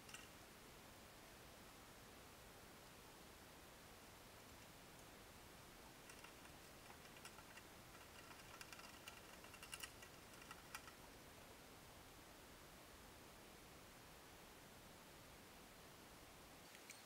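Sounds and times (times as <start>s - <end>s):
mice scrabbling in a trap: 6.0s - 11.0s.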